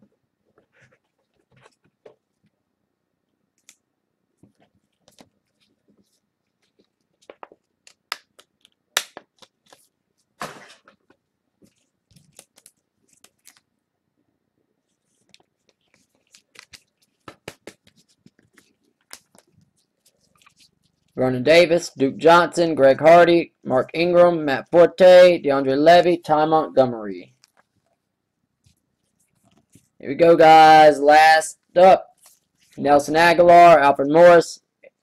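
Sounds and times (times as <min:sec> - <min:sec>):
card wrappers crackling: 0:11.0 - 0:13.7, 0:14.9 - 0:21.2, 0:27.2 - 0:28.0.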